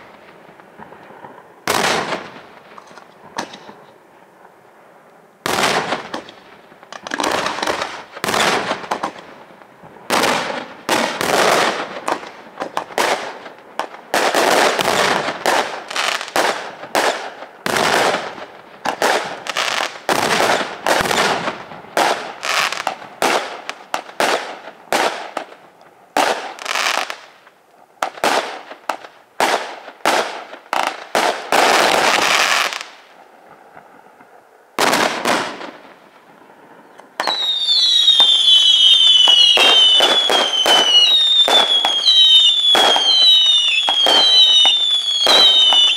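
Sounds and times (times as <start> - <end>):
firework crackling: 5.4 - 45.9
firework shells bursting: 37.2 - 45.9.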